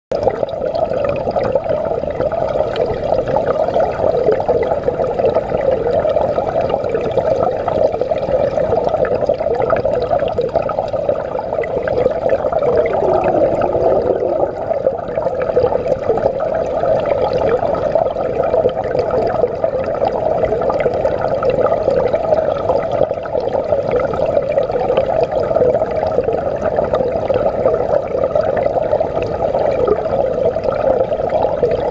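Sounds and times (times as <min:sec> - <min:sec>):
water rushing underwater: 0:11.7 - 0:17.1.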